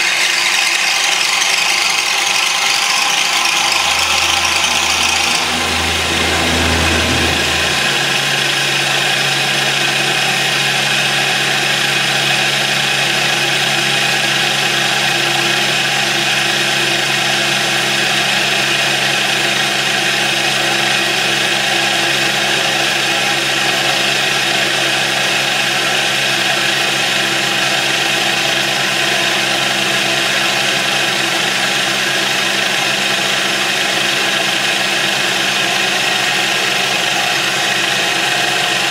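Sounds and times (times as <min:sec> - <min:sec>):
electric motor humming: 0:00.7 - 0:09.3.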